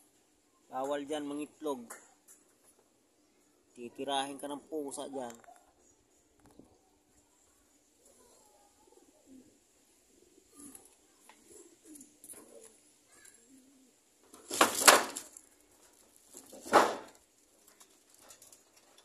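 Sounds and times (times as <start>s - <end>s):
pigeons cooing: 7.7s - 14.6s.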